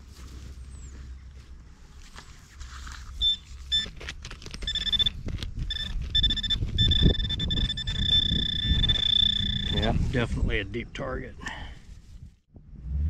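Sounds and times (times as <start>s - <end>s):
hands scraping in loose soil: 0.0s - 7.1s
metal detector probe beeping: 3.2s - 3.9s, 4.6s - 9.9s.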